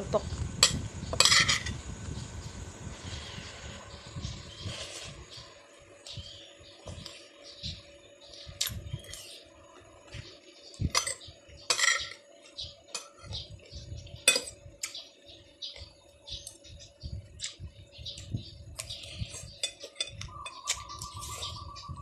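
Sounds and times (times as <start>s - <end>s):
cutlery clinking and scraping plate: 0.6s - 1.8s, 11.0s - 12.2s, 19.6s - 21.5s.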